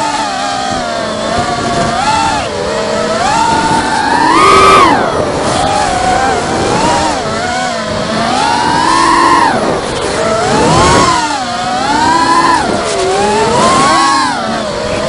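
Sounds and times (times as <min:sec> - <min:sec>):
drone propellers whining: 0:00.0 - 0:15.0.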